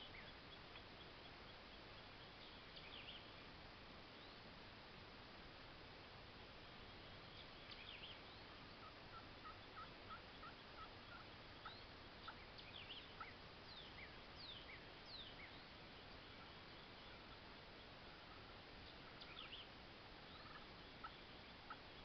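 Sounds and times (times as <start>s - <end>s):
turkey yelping: 8.8s - 12.4s, 20.4s - 21.8s.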